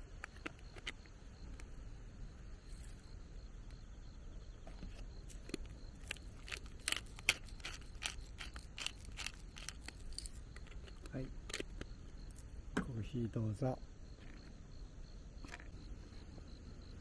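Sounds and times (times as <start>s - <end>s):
grinder crunching clicks: 5.4s - 11.9s.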